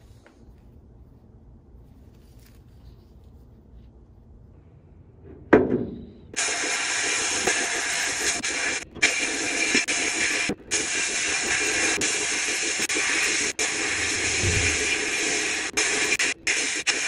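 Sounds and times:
sandblasting gun hissing: 0:06.4 - 0:17.0.

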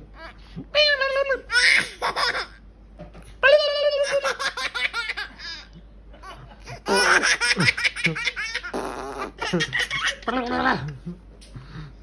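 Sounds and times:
toddlers laughing: 0:01.5 - 0:02.6, 0:04.0 - 0:10.4.

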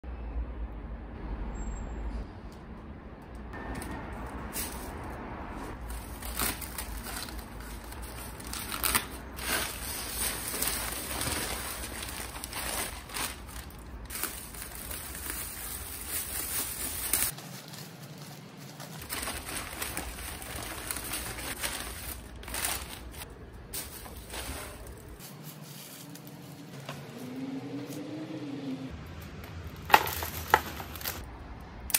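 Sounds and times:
paper and plastic bags crinkling: 0:05.7 - 0:27.1, 0:29.9 - 0:31.2.

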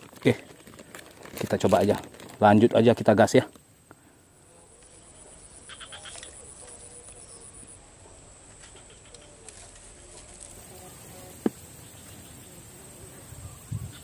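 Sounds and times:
frogs calling: 0:03.8 - 0:07.8, 0:08.6 - 0:09.6, 0:11.4 - 0:14.0
high-pitched insect whine: 0:04.6 - 0:14.0
chirps: 0:04.8 - 0:07.8, 0:13.3 - 0:14.0.

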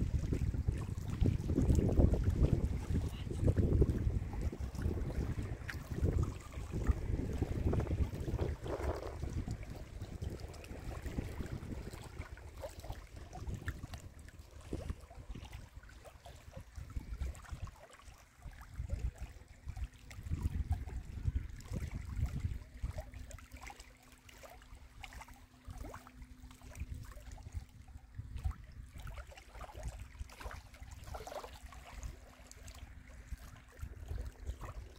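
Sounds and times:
waves lapping on rocky shore: 0:00.0 - 0:17.7
wind buffeting microphone: 0:00.0 - 0:17.8, 0:18.4 - 0:23.0, 0:26.8 - 0:34.9.

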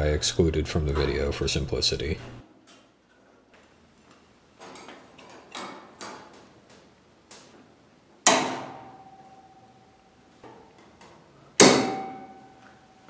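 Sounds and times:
aluminum panel ringing: 0:08.2 - 0:10.6, 0:11.6 - 0:13.0.

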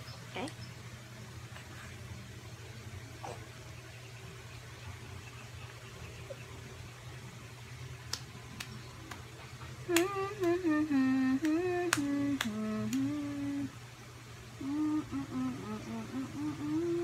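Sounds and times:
woman humming a tune: 0:09.8 - 0:13.8, 0:14.6 - 0:17.0.

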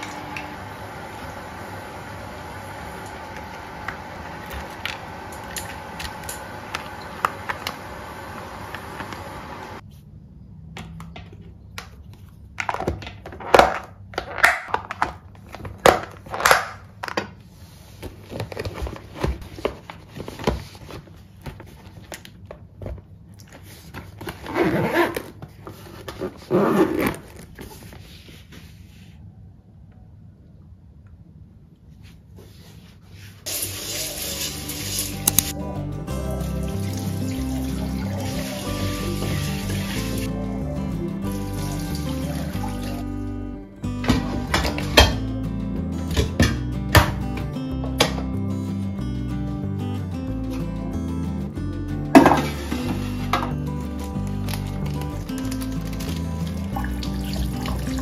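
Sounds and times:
zipper being pulled: 0:24.4 - 0:27.6.

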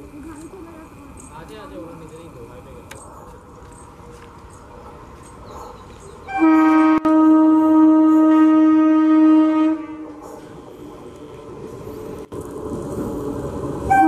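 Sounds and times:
train running rumble: 0:00.0 - 0:14.0
train horn blast: 0:06.3 - 0:10.2.

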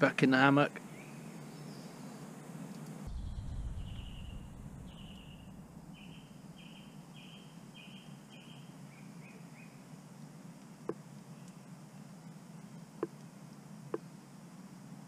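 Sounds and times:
songbird singing: 0:00.7 - 0:10.0, 0:10.9 - 0:13.3
low rumble: 0:03.0 - 0:06.6.

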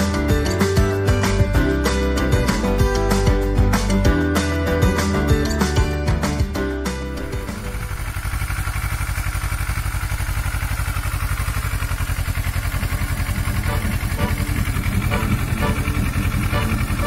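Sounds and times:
motorcycle engine idling: 0:07.1 - 0:17.0.

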